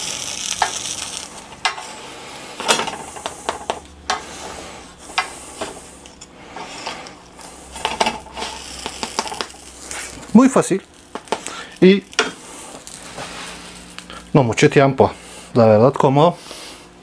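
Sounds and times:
faint sizzling hiss: 0.0s - 17.0s
spatula tapping and scraping griddle: 0.5s - 0.9s, 1.5s - 2.0s, 2.6s - 10.2s, 11.1s - 13.6s.

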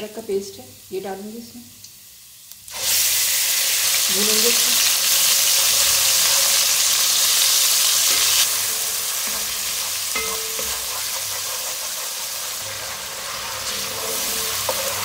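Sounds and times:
paste sizzling in oil: 1.9s - 15.0s
wooden spatula scraping pot: 9.2s - 15.0s.

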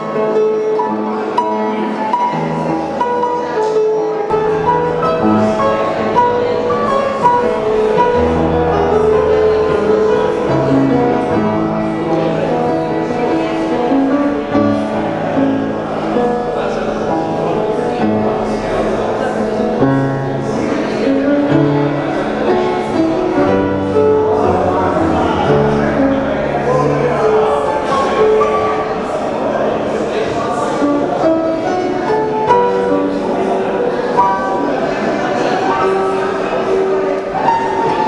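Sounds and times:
solo grand piano piece: 0.0s - 38.0s.

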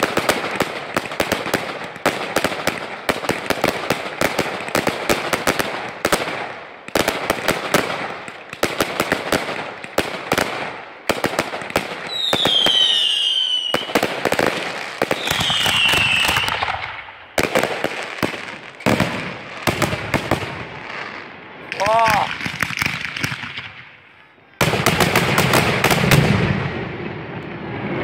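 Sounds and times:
fireworks bangs and crackling: 0.0s - 28.0s
falling firework whistles: 12.0s - 14.0s, 14.8s - 17.2s.

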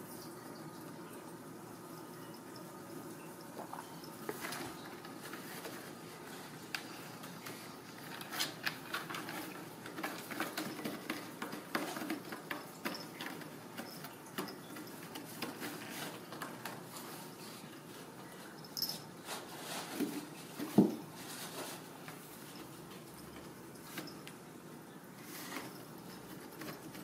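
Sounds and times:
kittens claws scraping and scrabbling: 3.6s - 17.9s, 25.2s - 27.0s.

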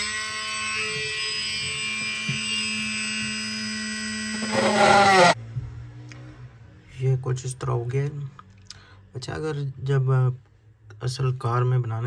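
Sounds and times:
drill motor whining: 0.0s - 5.4s.

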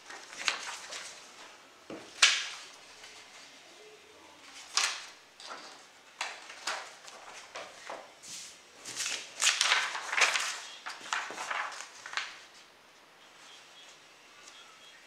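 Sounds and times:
paper rustling and sliding: 0.0s - 3.6s, 5.8s - 12.7s.

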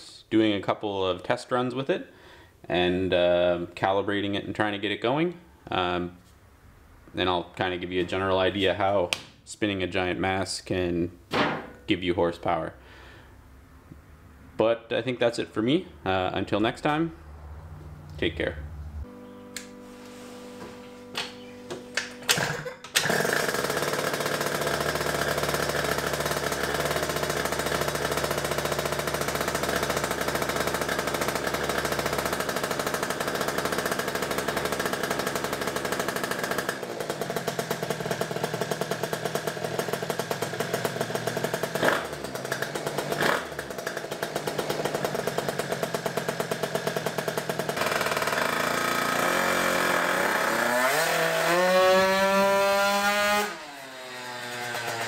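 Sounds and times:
two-stroke scooter engine running: 21.1s - 55.0s.

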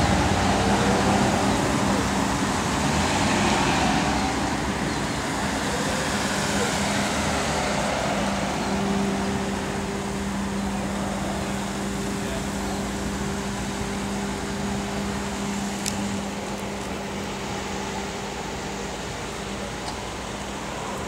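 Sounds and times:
cars rolling past humming: 0.0s - 21.0s.

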